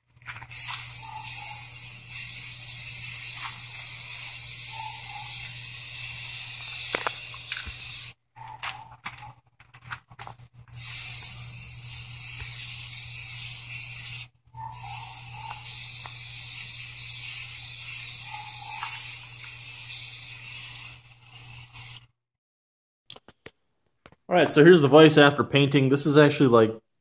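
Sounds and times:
spray paint can hissing: 0.2s - 8.2s, 10.6s - 22.1s.

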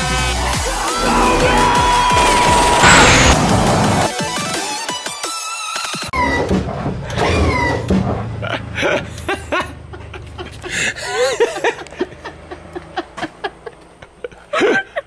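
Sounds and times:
people laughing and giggling: 8.4s - 15.0s.

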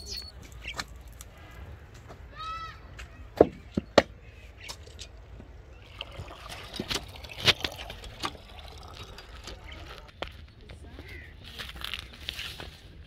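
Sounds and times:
water splashing into metal bucket: 5.8s - 10.1s
hand pump clanking: 6.0s - 10.1s.

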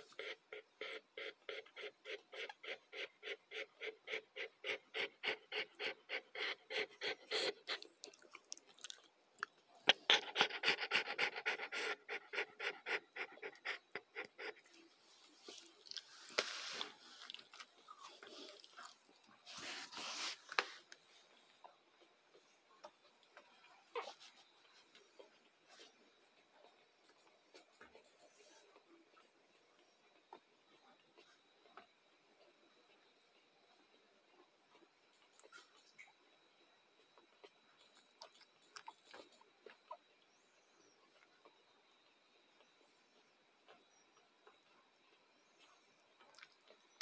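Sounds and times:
dog panting: 0.0s - 9.0s, 9.8s - 21.7s
rustling: 14.6s - 22.4s.

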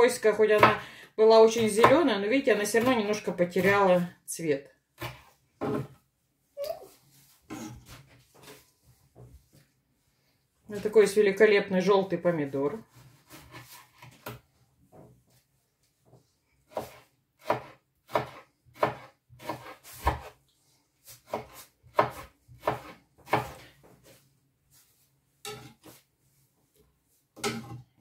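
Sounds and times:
knife chopping on cutting board: 5.0s - 5.9s, 16.7s - 20.4s, 21.2s - 23.6s.

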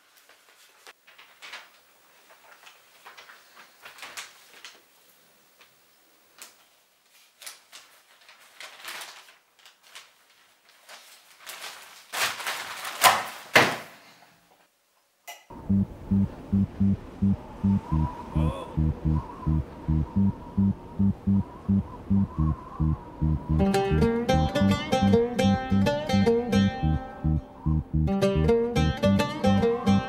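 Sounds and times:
newspaper pages rustling: 0.0s - 4.8s, 6.6s - 13.5s
music with steady beat: 15.7s - 18.2s, 18.8s - 30.0s.

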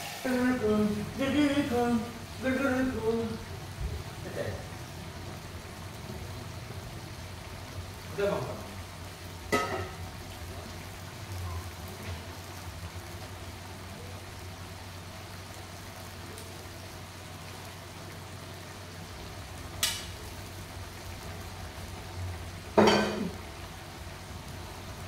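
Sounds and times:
wok sizzling: 0.0s - 25.0s.

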